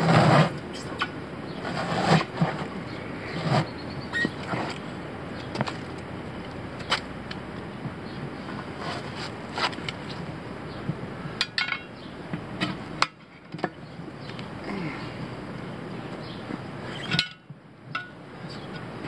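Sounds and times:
tire iron clinking on wheel rim: 0:11.4 - 0:14.5, 0:16.2 - 0:19.0.

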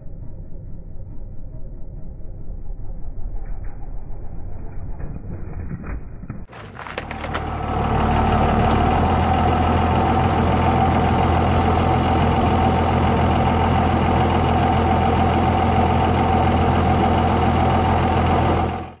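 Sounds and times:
diesel pickup engine idling: 0:06.6 - 0:19.0.

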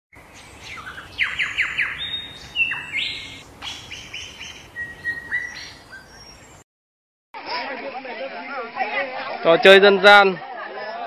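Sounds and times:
songbirds chirping and singing: 0:00.2 - 0:06.6.

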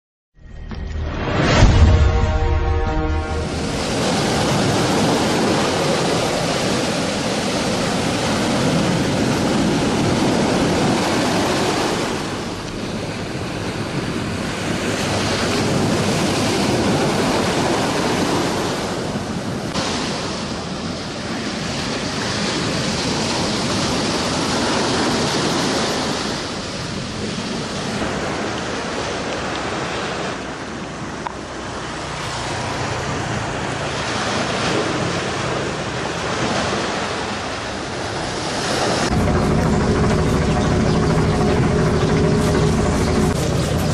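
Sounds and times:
wind: 0:00.4 - 0:43.9
surf breaking on rocky shore: 0:01.3 - 0:30.7.

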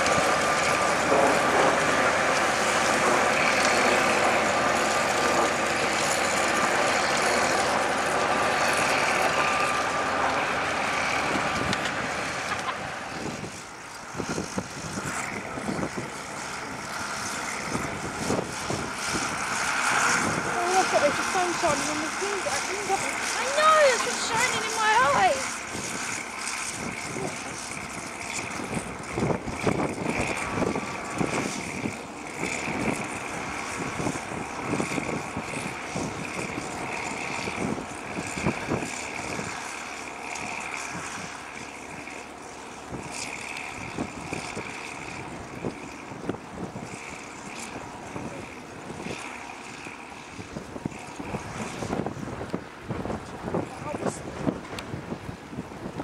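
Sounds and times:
tractor diesel engine under load: 0:00.0 - 0:50.1.

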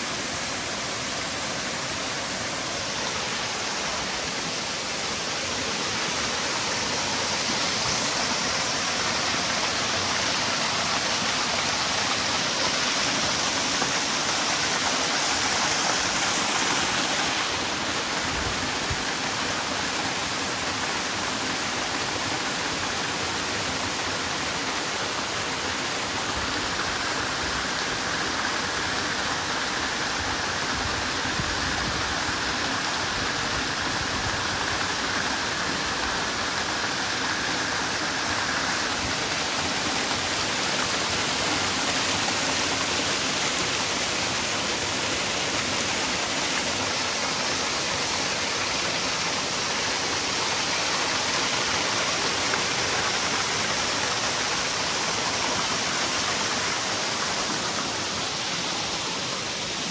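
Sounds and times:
waterfall roaring: 0:00.0 - 0:59.9.

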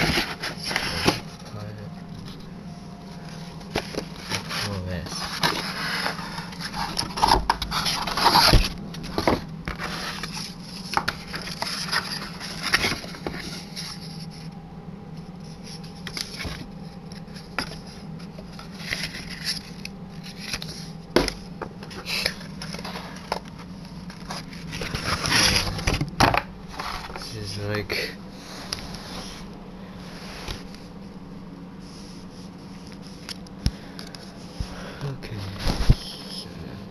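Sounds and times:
cardboard box being unpacked: 0:00.0 - 0:01.7, 0:03.6 - 0:14.4, 0:15.5 - 0:27.3
low steady hum: 0:00.0 - 0:36.9.

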